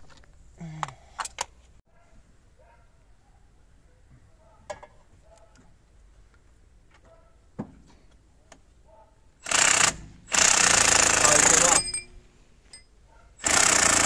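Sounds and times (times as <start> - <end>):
cordless power driver running: 9.4 - 11.9, 13.4 - 14.0.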